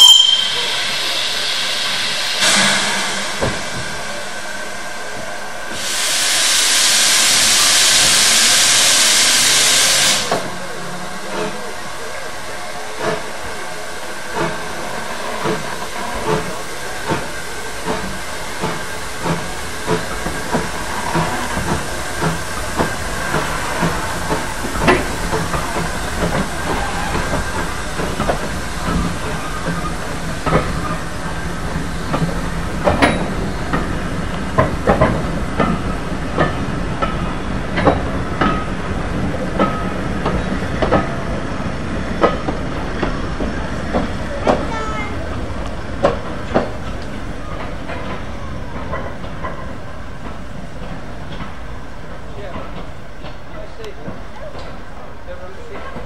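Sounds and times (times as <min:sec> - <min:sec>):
steam hissing: 0:00.0 - 0:44.3.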